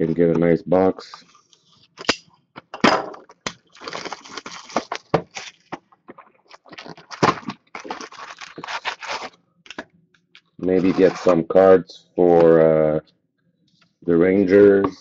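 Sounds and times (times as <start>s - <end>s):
plastic film crinkling: 3.4s - 9.8s, 10.7s - 11.4s
box cutter slitting plastic wrap: 7.0s - 9.3s.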